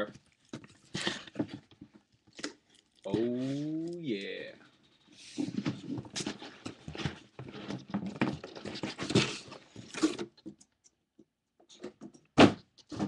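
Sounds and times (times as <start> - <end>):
cardboard scraping and rustling: 5.1 - 10.4.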